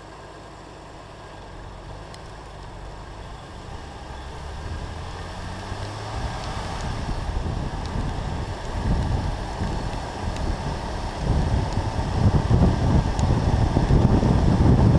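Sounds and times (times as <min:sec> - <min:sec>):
car engine running: 0:00.0 - 0:14.9
wind buffeting microphone: 0:04.5 - 0:14.9.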